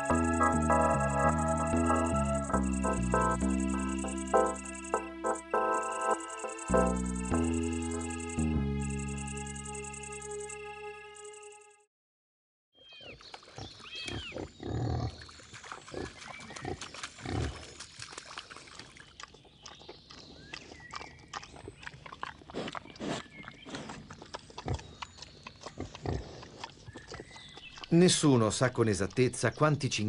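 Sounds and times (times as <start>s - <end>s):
high chirps: 0.0s - 11.7s
wild boar grunting: 13.5s - 15.2s, 20.4s - 28.0s.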